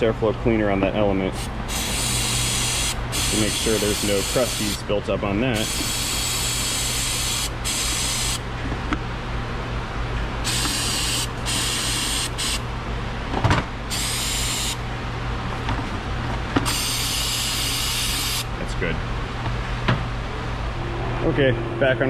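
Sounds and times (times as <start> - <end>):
aerosol spray hissing: 1.7 - 4.7
low hum: 18.9 - 22.0.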